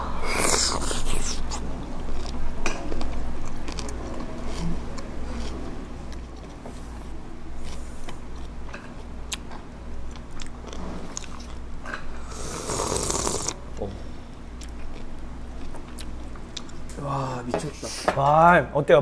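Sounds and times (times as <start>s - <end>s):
chewing: 0.2s - 6.6s, 7.6s - 11.6s, 14.6s - 16.8s
loud slurp: 12.3s - 13.6s.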